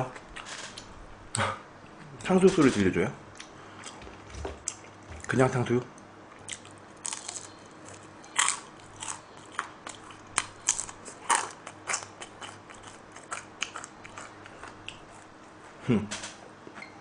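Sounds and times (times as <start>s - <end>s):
crunching and chewing food: 3.3s - 15.6s.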